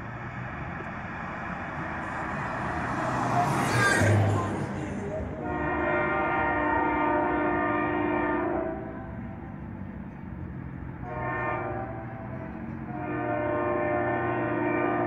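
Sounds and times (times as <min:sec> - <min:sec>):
locomotive air horn blasts: 0:05.3 - 0:09.5, 0:11.0 - 0:15.0.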